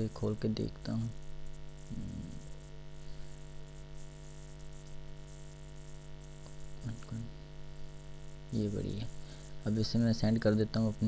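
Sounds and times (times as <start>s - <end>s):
electrical mains hum: 0.0s - 11.0s
recording hiss: 0.0s - 11.0s
short low voice sound: 1.9s - 2.4s.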